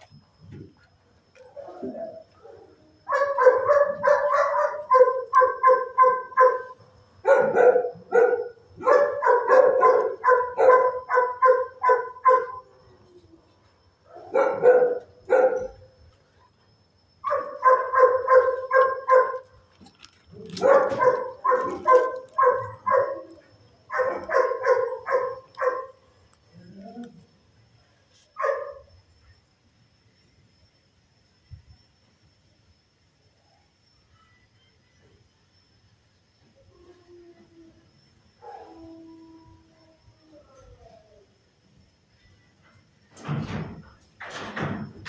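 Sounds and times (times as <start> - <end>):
dog barking: 2.4 - 12.7, 14.1 - 15.8, 17.2 - 19.5, 20.5 - 23.3, 23.9 - 26.0, 28.4 - 28.9, 38.4 - 38.9.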